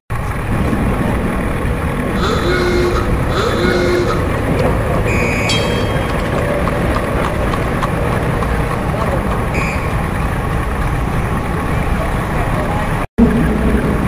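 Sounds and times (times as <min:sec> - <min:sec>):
traffic noise: 0:00.1 - 0:14.0
indistinct crowd chatter: 0:01.8 - 0:13.1
bell ringing: 0:02.2 - 0:06.7.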